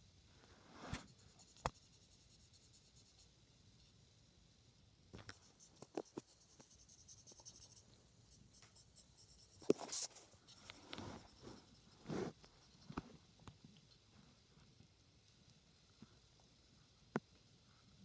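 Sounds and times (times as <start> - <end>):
swishing rubs: 9.8 - 12.5.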